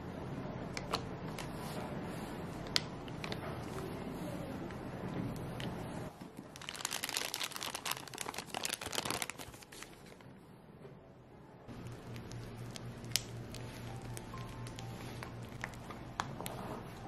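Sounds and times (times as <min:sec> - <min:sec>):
plastic piping bag crinkling: 0:06.4 - 0:10.2, 0:11.7 - 0:17.0.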